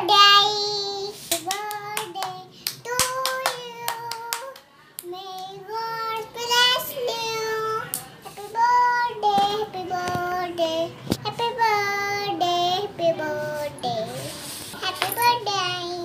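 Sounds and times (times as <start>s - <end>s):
girl singing: 0.0s - 16.0s
hands clapping: 1.3s - 5.5s.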